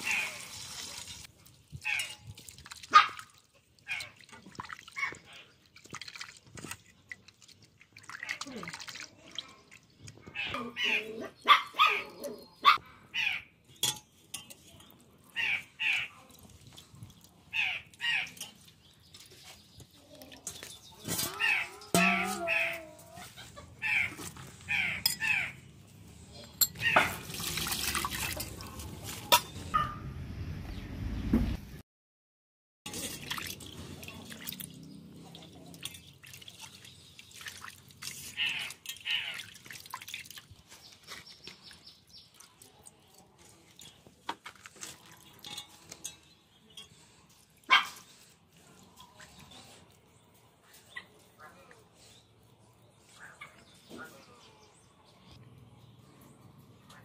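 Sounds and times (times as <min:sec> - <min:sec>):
water poured into a steel bowl: 0:00.0 - 0:05.0, 0:05.6 - 0:10.0, 0:26.7 - 0:29.5, 0:32.9 - 0:40.8
birds calling: 0:17.5 - 0:25.7.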